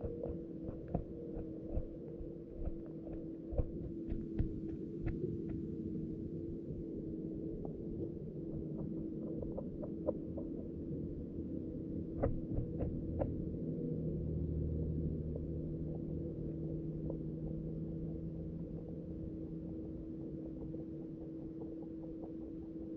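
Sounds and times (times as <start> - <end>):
low underwater hum: 0.0 - 22.9.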